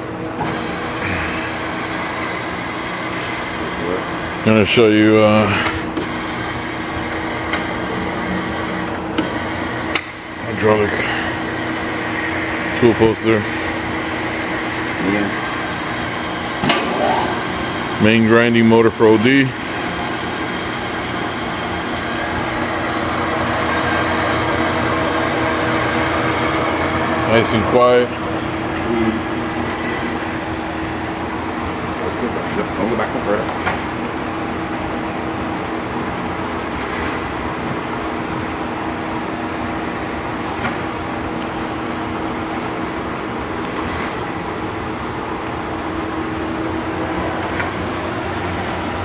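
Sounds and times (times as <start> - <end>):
grinder motor humming: 5.1 - 33.4.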